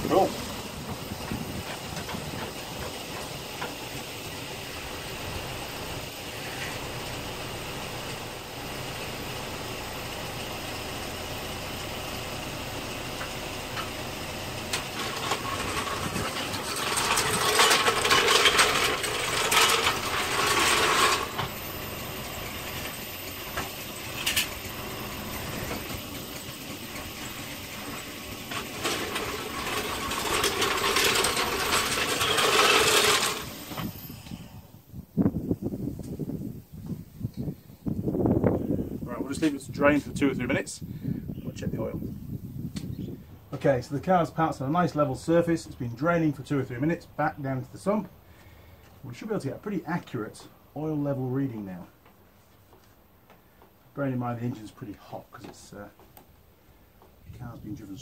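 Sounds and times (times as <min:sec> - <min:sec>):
car engine idling: 0:00.0 - 0:34.9
mechanical noise: 0:13.6 - 0:34.9.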